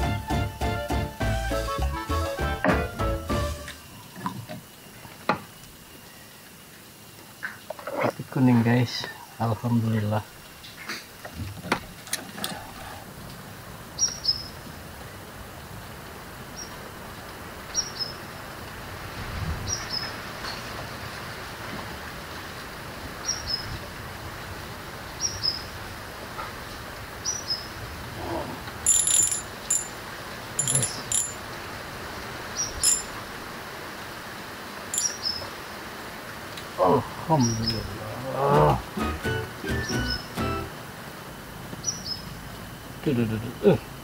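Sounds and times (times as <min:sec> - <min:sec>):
steady background hiss: 0:00.0 - 0:44.0
small bird chirping: 0:30.6 - 0:31.3, 0:35.0 - 0:35.5, 0:41.8 - 0:42.4.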